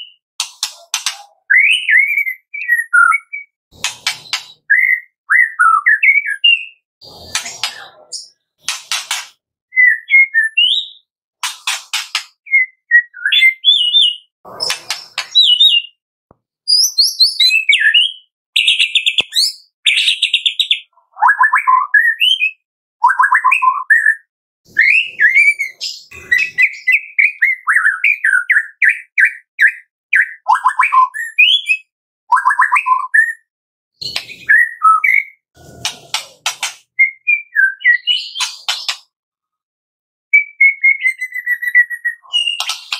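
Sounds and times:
bird singing whistled phrases: 0:01.4 - 0:03.6, 0:04.2 - 0:06.8, 0:09.7 - 0:11.1, 0:12.4 - 0:16.0, 0:16.7 - 0:33.4, 0:34.0 - 0:35.4, 0:37.0 - 0:38.5, 0:40.3 - 0:42.9.

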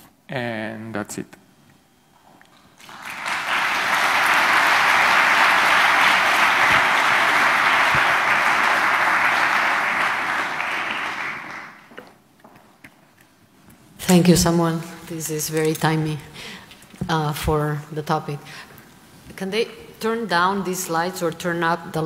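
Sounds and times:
audience applauding: 0:02.8 - 0:11.9.

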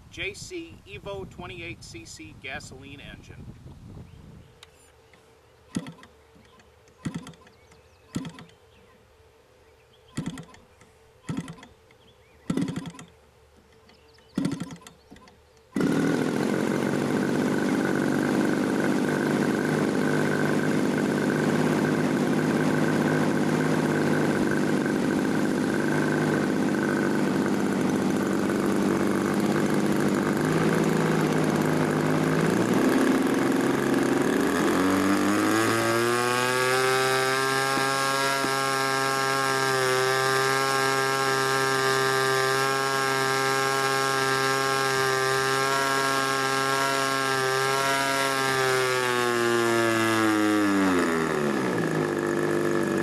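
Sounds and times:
model airplane engine popping: 0:04.6 - 0:08.6, 0:10.1 - 0:53.0
model airplane engine running: 0:15.8 - 0:53.0.

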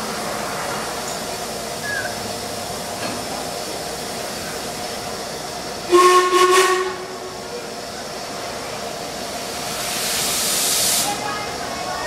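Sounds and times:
steam hissing: 0:00.0 - 0:12.0
steam whistle blast: 0:05.9 - 0:07.0.

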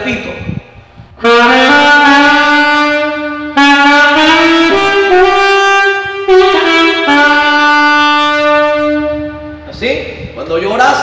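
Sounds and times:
saxophone slow melody: 0:01.0 - 0:09.8.

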